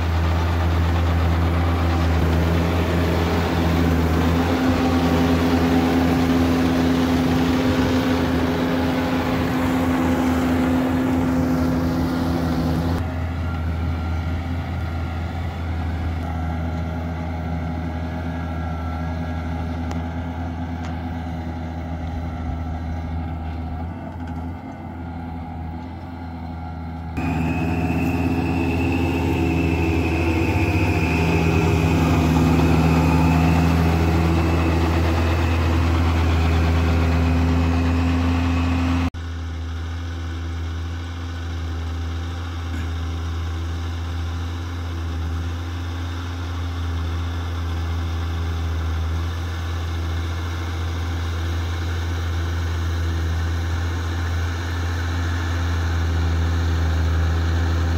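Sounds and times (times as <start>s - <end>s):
high whine: 0.0s - 17.3s, 26.7s - 39.1s
tractor diesel engine under load: 0.0s - 57.9s.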